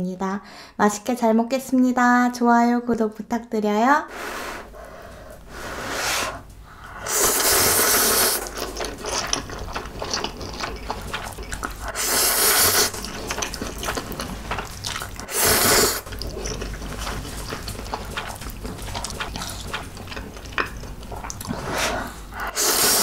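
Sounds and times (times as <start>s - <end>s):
noodles slurping: 5.7s - 23.0s
wet chewing: 6.9s - 23.0s.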